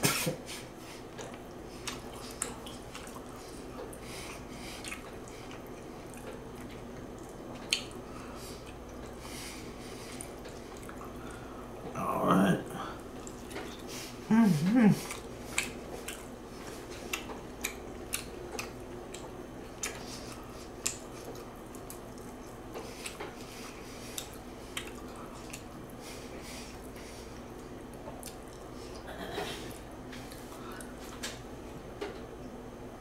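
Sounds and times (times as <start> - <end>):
wet chewing and lip-smacking: 1.1 - 9.2, 10.0 - 11.4, 13.0 - 13.9, 15.0 - 29.0.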